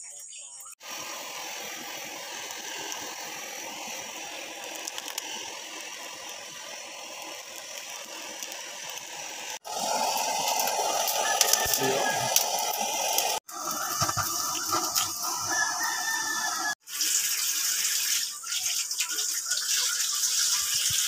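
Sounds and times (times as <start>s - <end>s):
blowtorch hissing: 0.8s - 16.8s.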